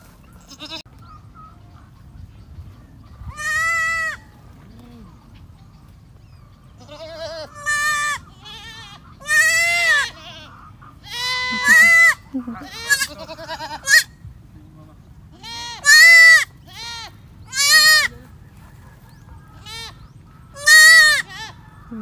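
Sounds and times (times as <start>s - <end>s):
goats bleating: 0.4s - 0.9s, 3.3s - 5.3s, 6.7s - 14.2s, 15.3s - 18.2s, 19.5s - 22.0s.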